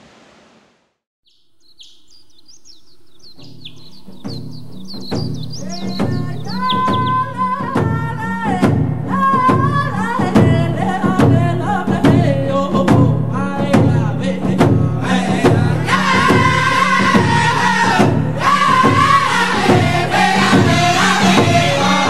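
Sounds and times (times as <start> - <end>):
steady beat: 3.3 - 7.4.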